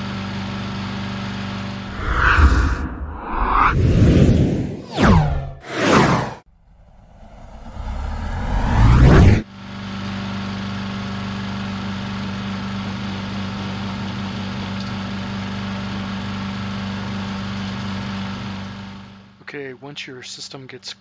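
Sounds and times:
whoosh sound effect: 1.9 - 9.4.

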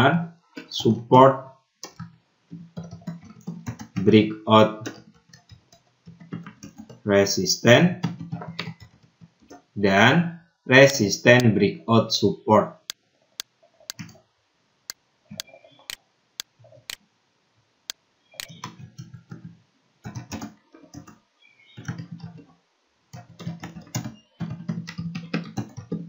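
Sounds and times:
typing on keyboard: 2.8 - 4.1, 4.8 - 7.0, 8.0 - 9.6, 13.9 - 14.2, 18.4 - 21.2, 21.8 - 22.4, 23.1 - 26.0.

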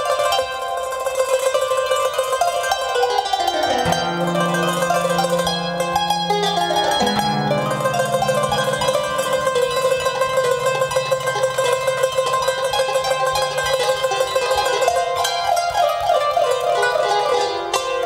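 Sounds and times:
qanun plucked fast: 0.0 - 18.0
low held note: 3.9 - 14.8.

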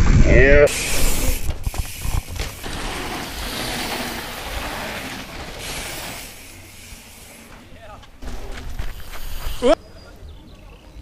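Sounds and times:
bike tyres rolling on dirt: 0.0 - 11.0
bike knocking over bumps: 1.4 - 5.6, 7.5 - 9.3.

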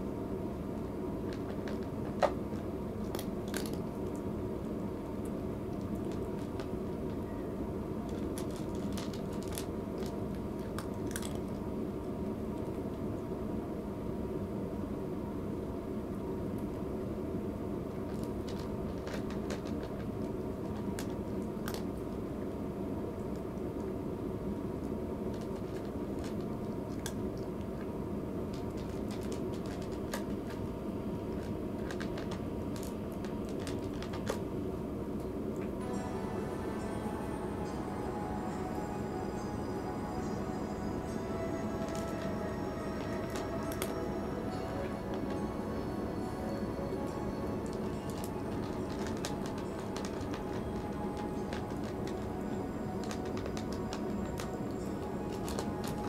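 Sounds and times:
steady low hum: 0.0 - 56.0
cat crunching dry food: 1.2 - 4.2, 8.1 - 11.6, 18.1 - 21.9, 25.3 - 27.5, 28.5 - 30.7, 31.3 - 34.4, 41.7 - 43.9, 47.6 - 56.0.

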